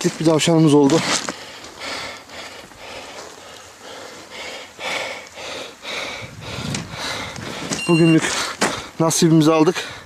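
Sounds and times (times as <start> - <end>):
noisy breath puffs: 1.0 - 9.0.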